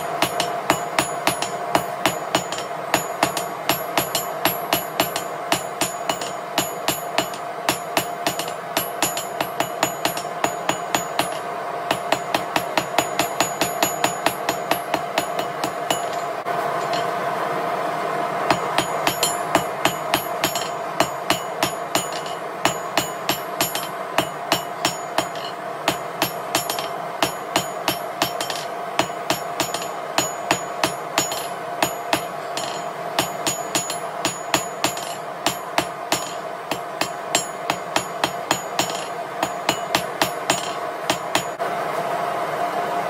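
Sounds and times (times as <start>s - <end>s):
hammer striking steel on anvil: 0.0s - 17.2s, 18.5s - 41.6s.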